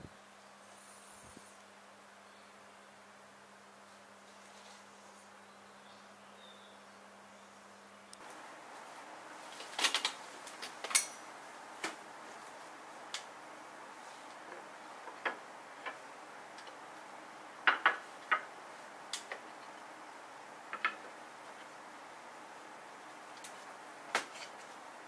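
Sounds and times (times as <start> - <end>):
wooden panels clicking and knocking: 14.3 - 16.8, 17.6 - 19.9, 20.6 - 21.7.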